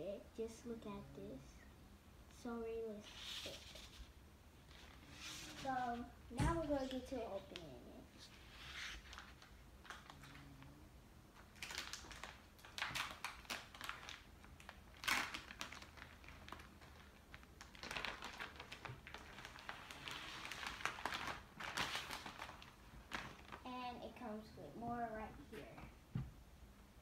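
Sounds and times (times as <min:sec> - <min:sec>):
plastic wrapping crinkling: 0:08.2 - 0:10.6, 0:11.4 - 0:24.2.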